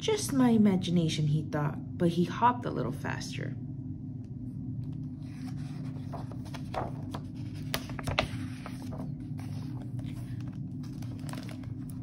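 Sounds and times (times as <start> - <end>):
steady low hum: 0.0 - 12.0
book page turning: 4.8 - 12.0.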